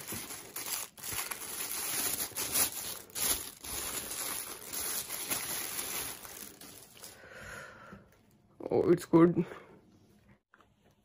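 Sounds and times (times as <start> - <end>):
bubble wrap crinkling: 0.0 - 7.2.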